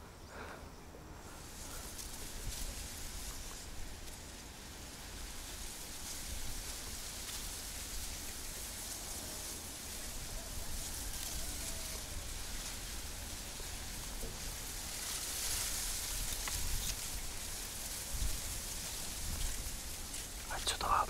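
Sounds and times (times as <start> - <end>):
steady outdoor hiss: 0.0 - 21.0
wind rumble on microphone: 15.6 - 20.5.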